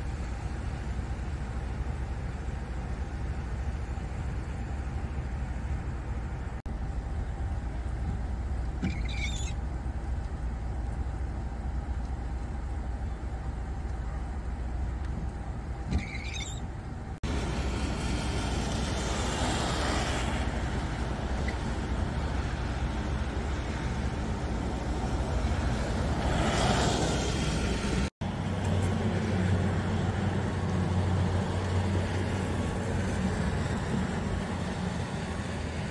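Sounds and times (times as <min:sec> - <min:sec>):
low rumble with hiss: 0:00.0 - 0:26.5.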